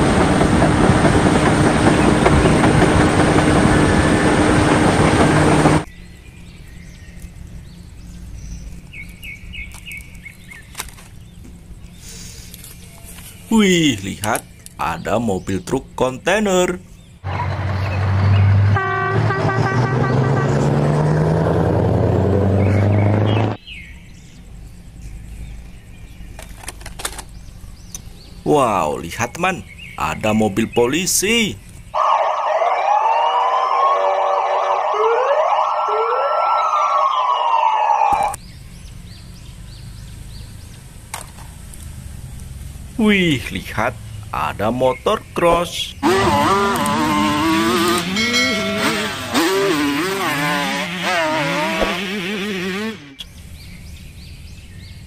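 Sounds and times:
dirt bike engine revving: 0:00.0 - 0:05.9, 0:17.2 - 0:23.6, 0:46.0 - 0:53.3
birds chirping: 0:00.0 - 0:19.0, 0:22.5 - 0:55.0
truck engine rumble: 0:00.0 - 0:55.0
truck horn blare: 0:17.3 - 0:21.1, 0:46.0 - 0:53.2.

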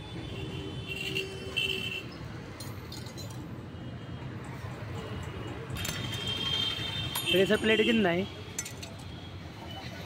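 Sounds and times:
metal parts knocking together: 0:08.5 - 0:09.1
socket wrench metallic clinks: 0:08.5 - 0:09.1.

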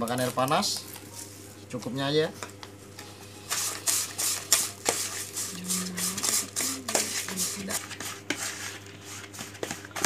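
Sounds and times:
plastic spoon scraping bowl: 0:03.5 - 0:10.0.

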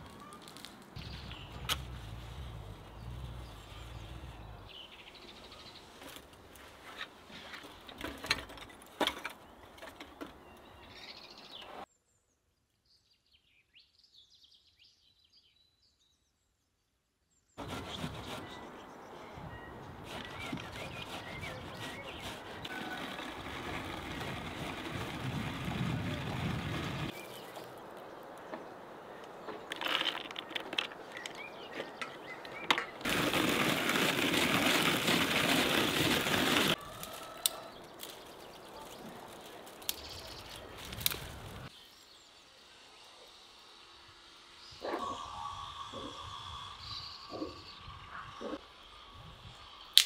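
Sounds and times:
hand-cranked nut grinder rattling: 0:20.1 - 0:27.1.

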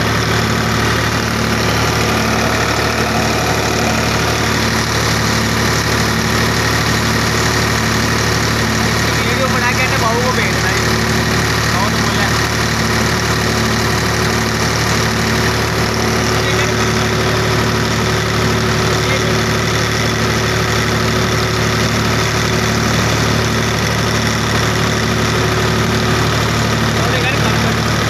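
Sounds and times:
tractor diesel engine running: 0:00.0 - 0:28.0.

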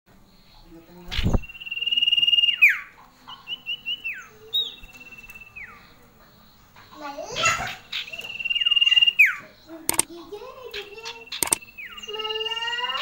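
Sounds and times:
bird whistling call: 0:01.1 - 0:05.9, 0:08.0 - 0:09.5, 0:11.0 - 0:13.0.

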